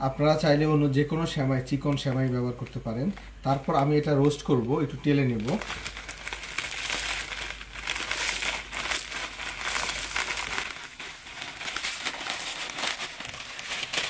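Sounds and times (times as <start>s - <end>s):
plastic packet crinkling: 0.4s - 14.0s
dry noodles rustling into wok: 5.2s - 14.0s.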